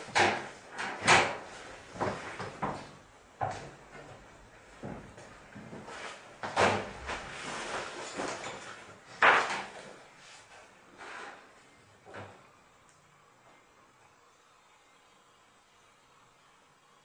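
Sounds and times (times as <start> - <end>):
knocks and scrapes of movement: 5.6 - 11.5.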